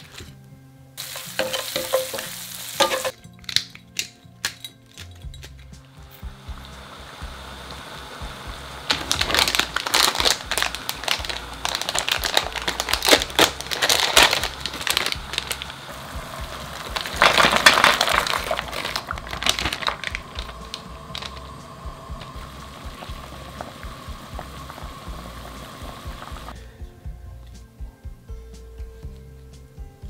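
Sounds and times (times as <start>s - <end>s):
plastic bag crinkling: 8.9s - 23.7s.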